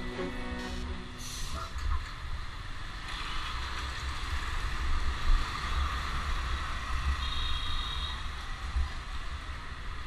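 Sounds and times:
noise hiss: 0:00.0 - 0:03.6.

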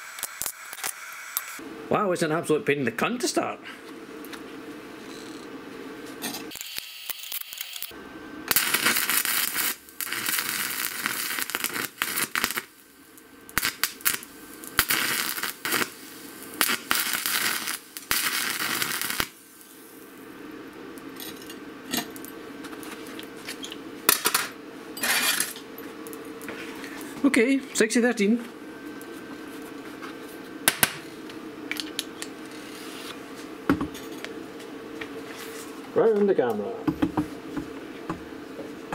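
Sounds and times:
welding arc crackling hiss: 0:00.0 - 0:01.7, 0:06.2 - 0:28.2.

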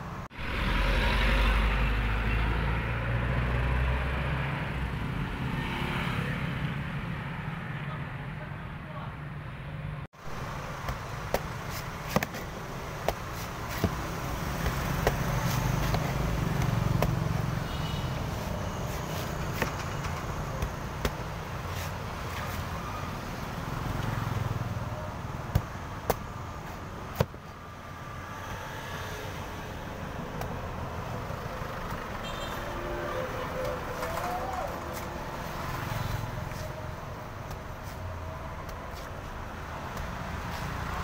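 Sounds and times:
street traffic rumble: 0:00.0 - 0:41.0
cleaver chopping coconut husk: 0:10.7 - 0:17.4, 0:25.4 - 0:26.3, 0:39.8 - 0:40.8.

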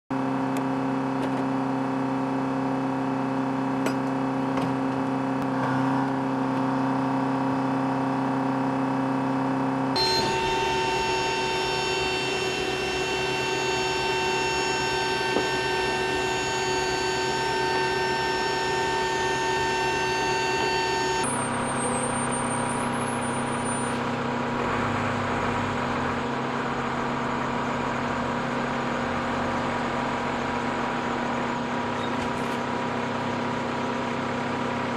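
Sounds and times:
engine drone with whining tones: 0:00.1 - 0:34.9.

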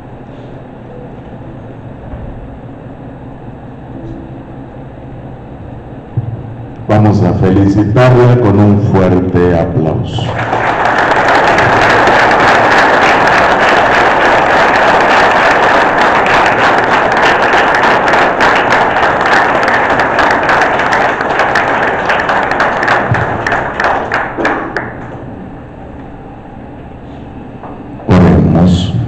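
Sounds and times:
congregation clapping: 0:09.8 - 0:25.2.

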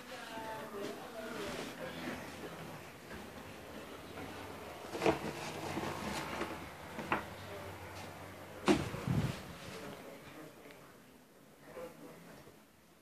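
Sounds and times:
objects shuffled about: 0:00.8 - 0:10.0.

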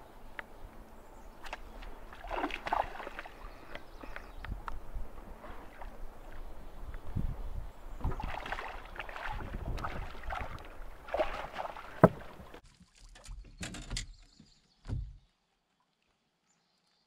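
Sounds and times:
fish splashing in water: 0:01.4 - 0:04.2, 0:08.0 - 0:13.2.

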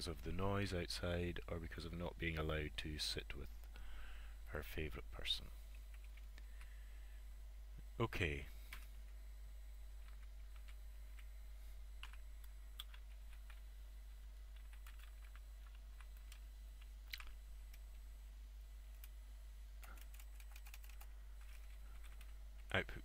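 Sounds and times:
low steady hum: 0:00.0 - 0:23.0
computer keyboard typing: 0:05.7 - 0:06.4, 0:10.0 - 0:11.3, 0:12.0 - 0:13.6, 0:14.4 - 0:17.9, 0:19.8 - 0:22.7.

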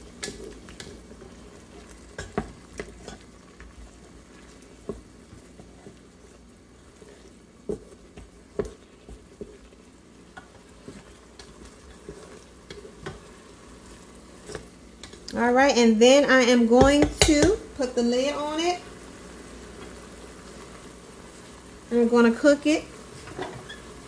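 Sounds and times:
spatula scraping and knocking pot: 0:00.0 - 0:13.4, 0:16.7 - 0:17.6
low sizzle: 0:00.0 - 0:24.0.

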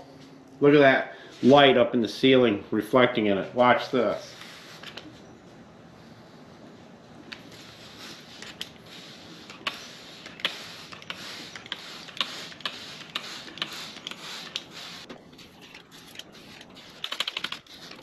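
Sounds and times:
water spray hiss: 0:07.4 - 0:15.1.

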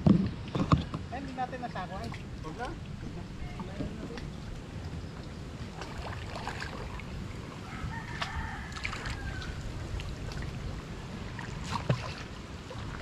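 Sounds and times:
water rushing as people wade: 0:00.6 - 0:13.0
rooster crowing: 0:07.6 - 0:09.7.

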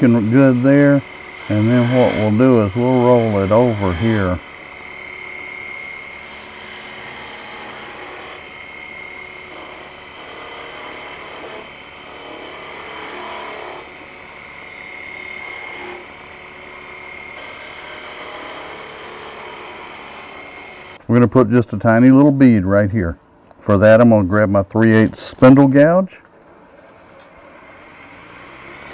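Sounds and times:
tool cutting wood hiss: 0:00.0 - 0:16.2
wood lathe whine: 0:00.0 - 0:21.0.

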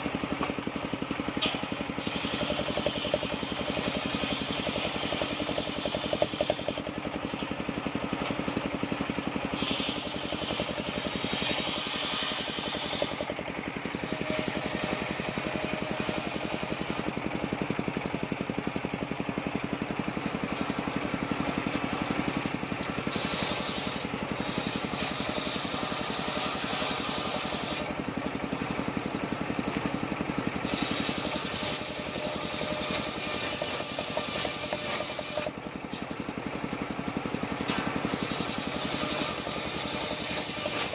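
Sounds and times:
sawmill engine running: 0:00.0 - 0:40.9
saw blade hissing in wood: 0:02.0 - 0:06.9, 0:09.5 - 0:17.1, 0:23.0 - 0:27.9, 0:30.6 - 0:35.5, 0:37.7 - 0:40.9.

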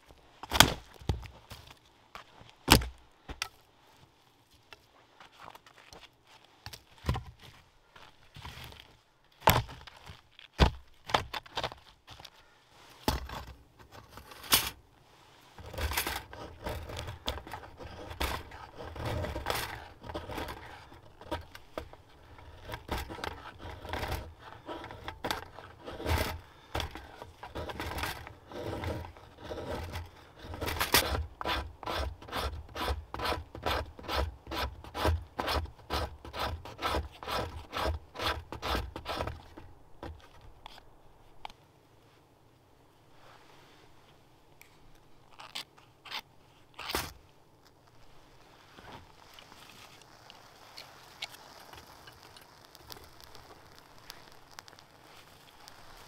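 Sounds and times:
knife scraping wooden stick: 0:15.6 - 0:39.6.

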